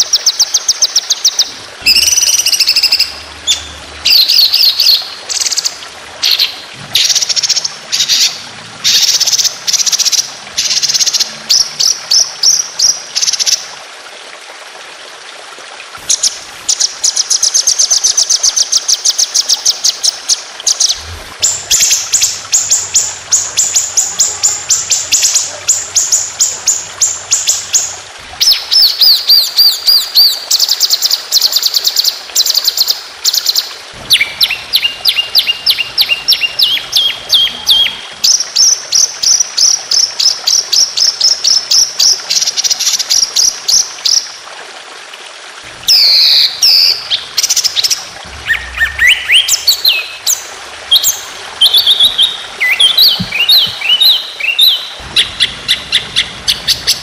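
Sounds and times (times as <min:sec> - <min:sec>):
songbird fast repeated notes: 0:45.9 - 0:57.0.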